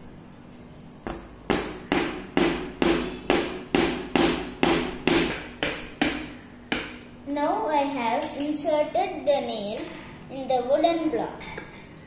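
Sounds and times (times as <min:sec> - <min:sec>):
hammer hitting nail into wood: 0:01.1 - 0:07.0.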